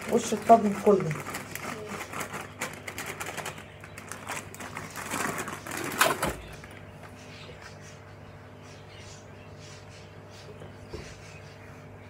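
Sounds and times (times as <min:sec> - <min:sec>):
plastic bag crinkling and rustling: 0:00.0 - 0:06.9.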